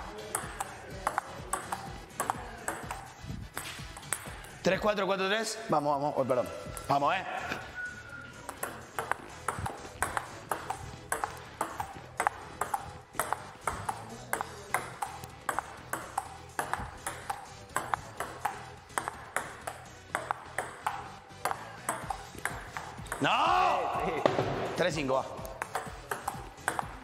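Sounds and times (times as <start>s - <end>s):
ping-pong ball clicking off paddles: 0.2s - 4.5s, 8.4s - 23.3s, 25.4s - 27.0s
ball bouncing on table: 0.3s - 4.4s, 8.5s - 23.4s, 25.4s - 27.0s.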